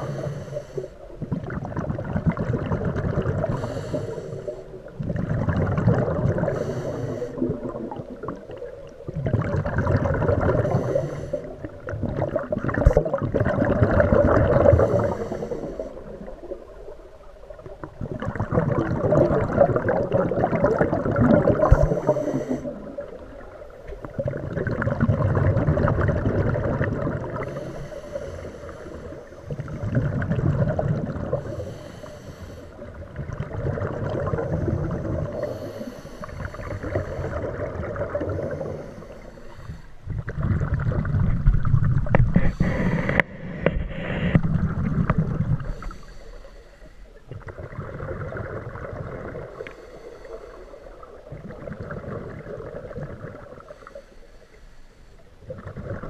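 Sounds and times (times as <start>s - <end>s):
regulator hiss on inhale: 0.0s - 1.2s, 3.5s - 4.8s, 6.4s - 8.0s, 10.6s - 11.8s, 14.7s - 16.4s, 21.6s - 23.2s, 27.4s - 29.7s, 31.3s - 33.0s, 34.4s - 40.1s, 42.3s - 44.6s, 45.5s - 47.3s, 49.5s - 51.3s, 53.6s - 55.4s
exhaled bubbles rushing: 1.2s - 3.8s, 4.8s - 27.6s, 29.4s - 31.6s, 32.8s - 35.5s, 36.4s - 38.9s, 40.1s - 45.8s, 47.3s - 49.6s, 51.0s - 53.7s, 55.4s - 56.0s.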